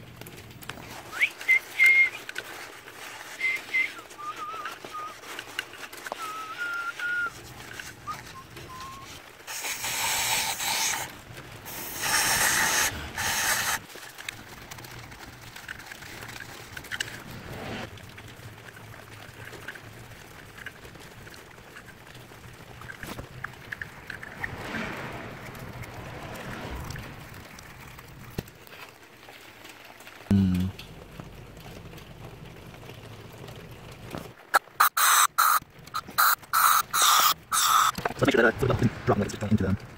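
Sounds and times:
person blowing hard by mouth: 0:11.7 - 0:13.8
light scraping: 0:22.9 - 0:29.0.

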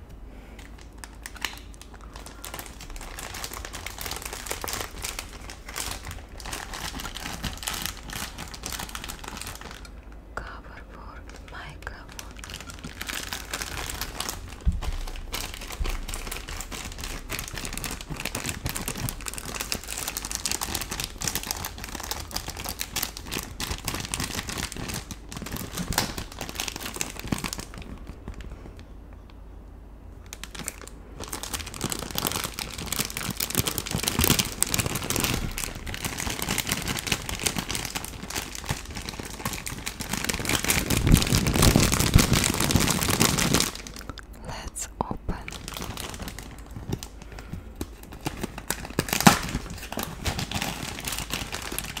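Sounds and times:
plastic bag crinkling: 0:00.5 - 0:10.6, 0:11.2 - 0:28.8, 0:30.2 - 0:44.7, 0:45.3 - 0:52.0.

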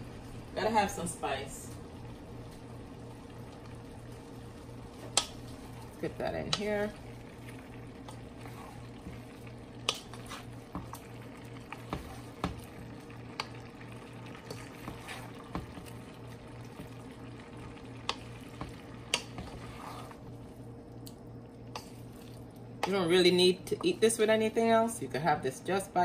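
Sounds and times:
pot simmering: 0:00.0 - 0:24.9
steady low hum: 0:00.0 - 0:26.0
wooden spoon stirring food: 0:04.8 - 0:20.7, 0:21.6 - 0:23.1.

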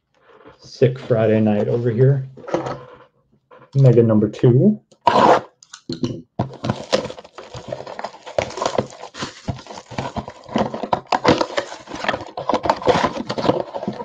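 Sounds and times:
plastic wrap tearing and crinkling: 0:06.5 - 0:14.0.

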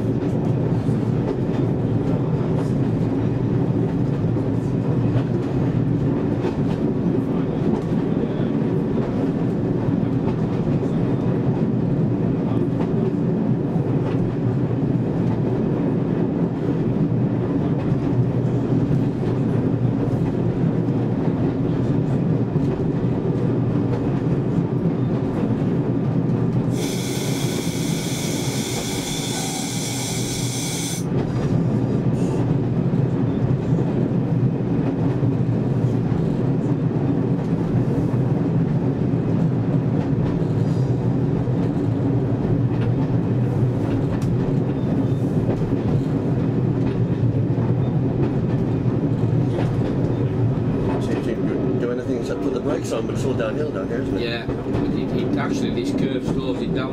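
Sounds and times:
train wheels on rails: 0:00.0 - 0:56.9
loud high-pitched hiss: 0:26.7 - 0:31.0.

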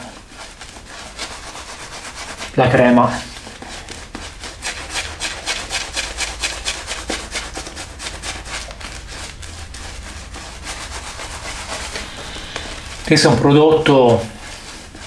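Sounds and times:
shaving brush scrubbing stubble: 0:00.0 - 0:15.0.

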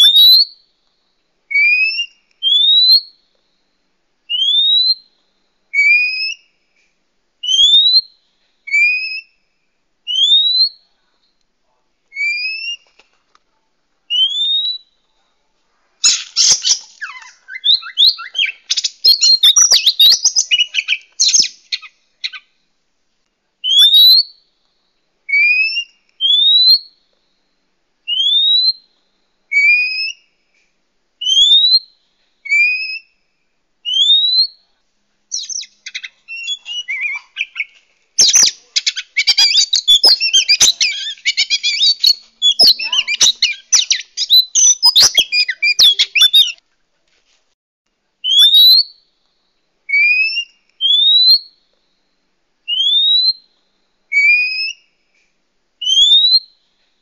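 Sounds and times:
bird whistled notes: 0:16.0 - 0:22.4, 0:38.2 - 0:46.6
bird chattering song: 0:16.0 - 0:22.5, 0:35.3 - 0:46.6.

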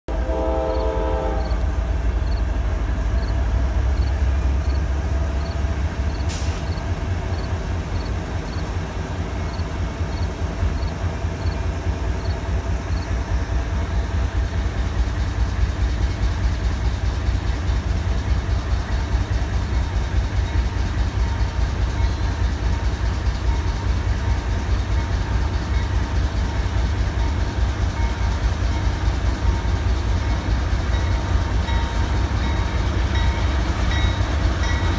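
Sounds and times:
train horn blast: 0:00.1 - 0:01.8
diesel locomotive rumble: 0:00.1 - 0:34.9.

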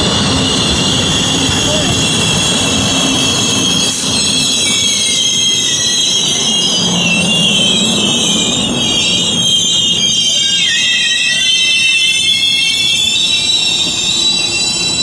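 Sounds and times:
metallic wheel squeal: 0:00.0 - 0:15.0
train cars rolling past: 0:00.0 - 0:15.0.

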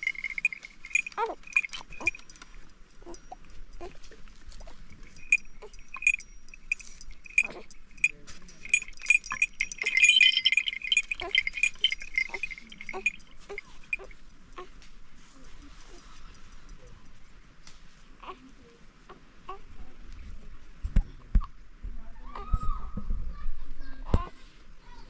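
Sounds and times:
animal bells clinking: 0:00.0 - 0:18.8.

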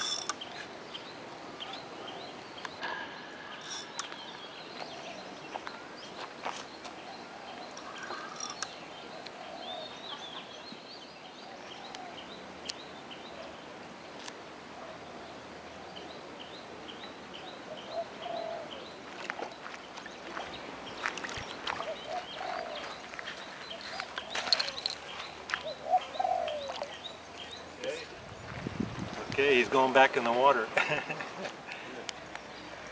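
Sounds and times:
short low bird calls: 0:21.5 - 0:28.2.

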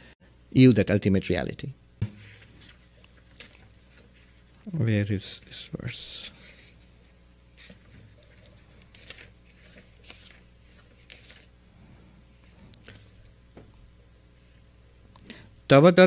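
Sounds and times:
book pages rustling: 0:02.0 - 0:04.7, 0:06.3 - 0:11.5, 0:12.3 - 0:13.4.

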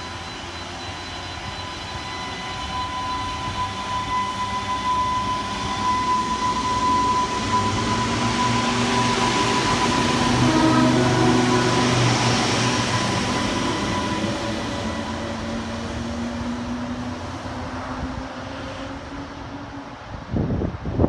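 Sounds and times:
train engine drone and whine: 0:00.0 - 0:21.0
wind gusts on microphone: 0:17.0 - 0:21.0.

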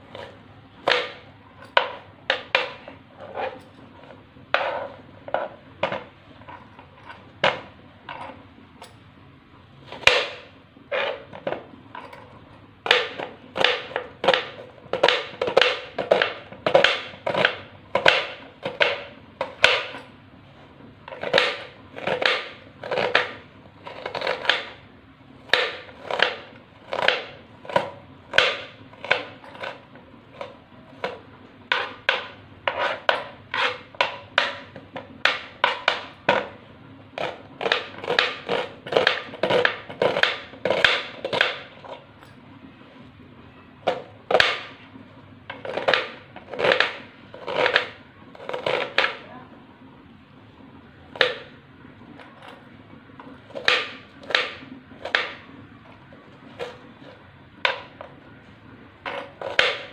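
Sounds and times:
knife chopping on cutting board: 0:21.1 - 0:24.8, 0:31.0 - 0:36.5, 0:37.2 - 0:41.7.

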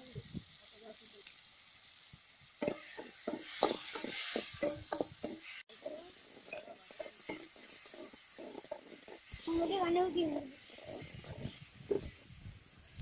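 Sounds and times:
vegetables sizzling: 0:00.0 - 0:13.0
steel ladle scraping a pan: 0:02.6 - 0:12.3.

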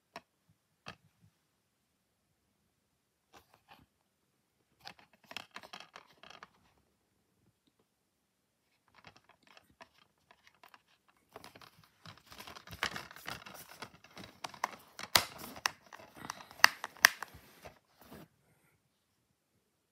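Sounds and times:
plastic case rustling and rattling: 0:04.8 - 0:06.7, 0:08.8 - 0:18.2
plastic case clicks: 0:12.1 - 0:17.4.

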